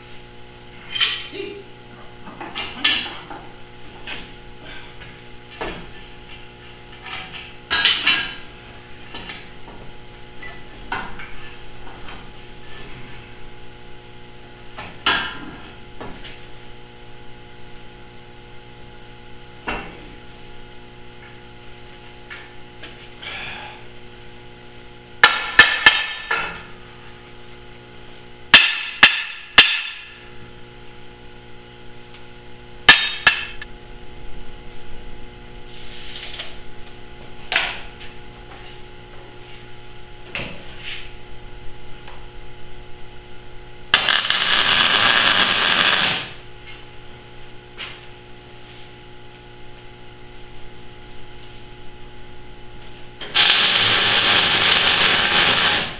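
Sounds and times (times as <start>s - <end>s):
steady hum: 0.0s - 55.9s
hammer striking steel: 28.6s - 30.2s, 32.9s - 33.6s.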